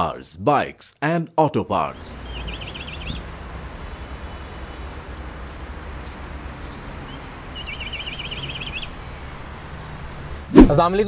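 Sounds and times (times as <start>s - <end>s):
bird quavering call: 2.0s - 9.0s.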